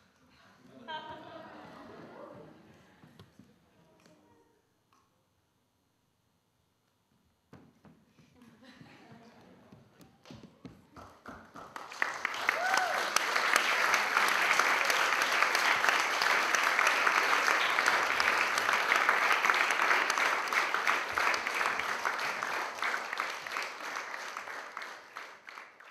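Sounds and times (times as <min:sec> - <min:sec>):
audience applauding: 0:11.0 - 0:25.9.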